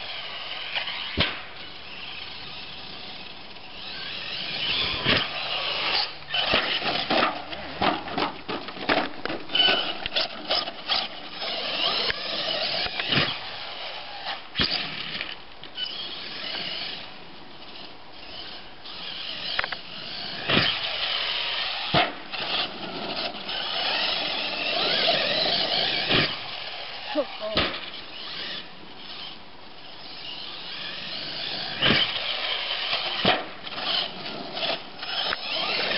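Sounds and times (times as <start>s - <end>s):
electric motor whining in bursts: 0.0s - 7.1s, 9.5s - 15.1s, 15.8s - 17.2s, 18.2s - 35.9s
toy truck landing with clattering knocks: 6.4s - 10.7s.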